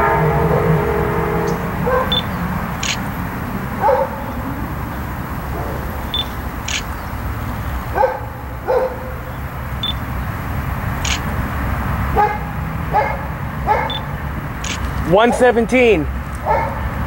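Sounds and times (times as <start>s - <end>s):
diesel locomotive rumbling: 0.0s - 17.0s
dog barking: 1.8s - 2.4s, 3.8s - 4.4s, 5.5s - 6.3s, 7.9s - 9.3s, 12.1s - 14.1s, 15.1s - 15.7s, 16.4s - 16.9s.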